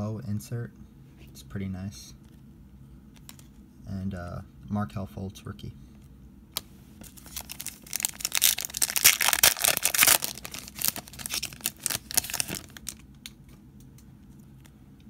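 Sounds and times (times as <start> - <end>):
foil wrapper crinkling: 7.0 - 13.2.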